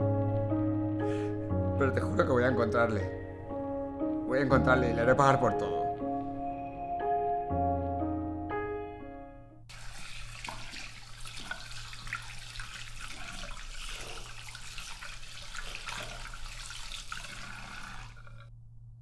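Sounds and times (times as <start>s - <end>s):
tap running into washbasin: 9.7s - 18.4s.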